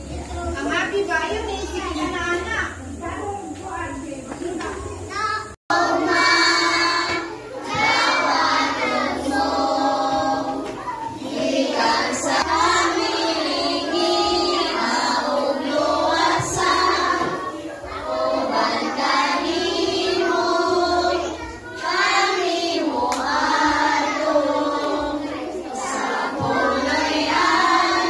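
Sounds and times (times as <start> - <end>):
children singing together: 5.7 - 28.0.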